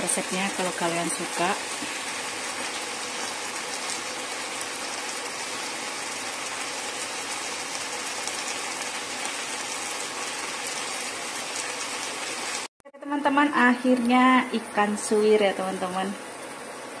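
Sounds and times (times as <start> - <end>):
sauce sizzling in a frying pan: 0.0 - 12.7.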